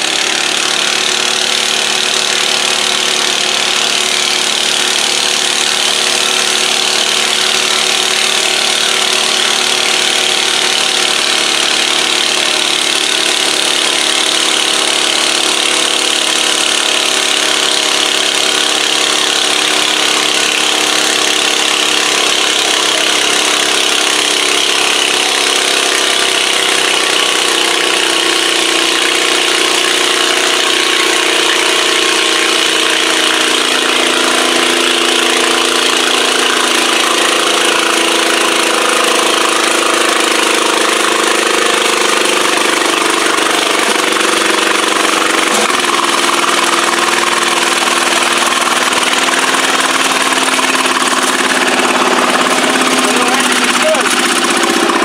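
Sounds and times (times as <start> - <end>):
tractor engine idling: 0.0 - 55.0.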